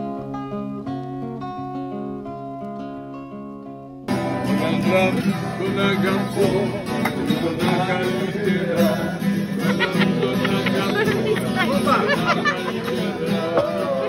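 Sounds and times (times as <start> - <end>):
acoustic guitar strumming: 0.0 - 14.0
recorded blues guitar song: 0.0 - 14.0
people singing along: 4.3 - 14.0.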